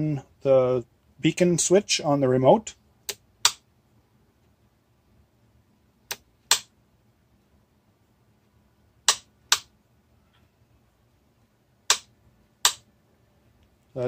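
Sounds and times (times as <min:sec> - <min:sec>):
toggle switch clicks: 0:03.1 - 0:03.6, 0:06.1 - 0:06.7, 0:09.0 - 0:09.7, 0:11.9 - 0:12.9.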